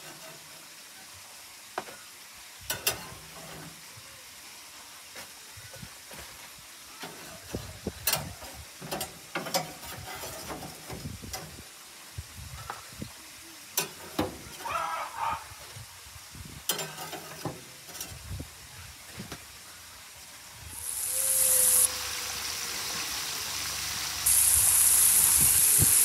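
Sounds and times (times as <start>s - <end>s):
faint sizzle: 0.0s - 26.0s
metal grill grates clinking: 2.7s - 3.8s, 7.0s - 11.5s, 16.7s - 18.2s.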